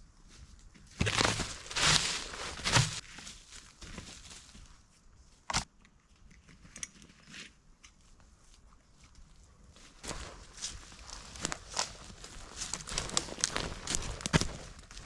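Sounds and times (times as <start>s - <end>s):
rustling crunching footsteps: 0.3s - 5.4s, 8.2s - 15.0s.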